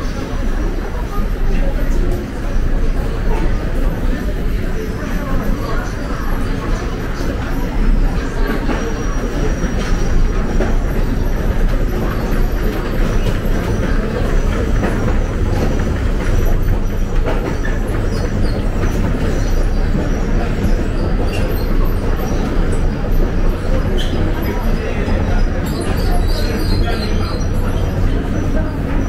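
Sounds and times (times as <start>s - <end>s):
train wheels rumbling on track: 0.0s - 29.0s
faint high wheel squeal: 16.3s - 29.0s.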